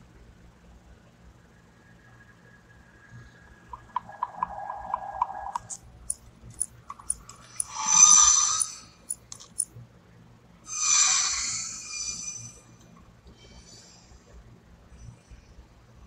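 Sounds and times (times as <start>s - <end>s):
sharp ticks: 3.7s - 9.7s.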